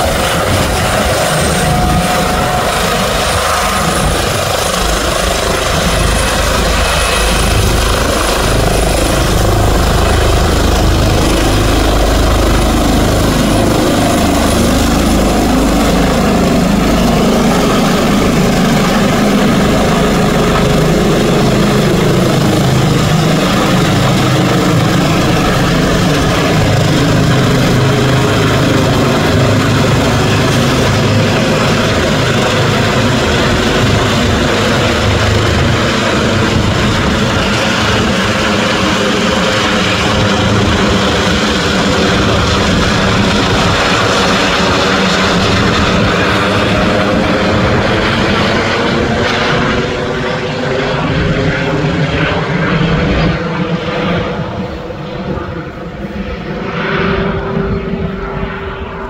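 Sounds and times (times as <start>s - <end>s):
helicopter rotor and turbine noise: 0.0s - 59.0s.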